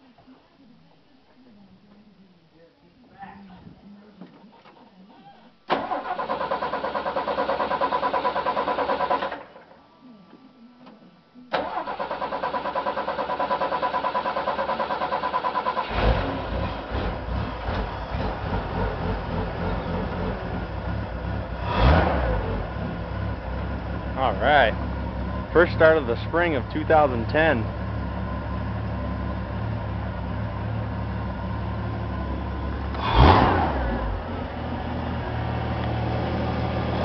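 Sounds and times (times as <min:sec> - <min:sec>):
truck engine running: 0:13.0 - 0:37.0
engine revving: 0:15.1 - 0:24.1, 0:29.4 - 0:37.0.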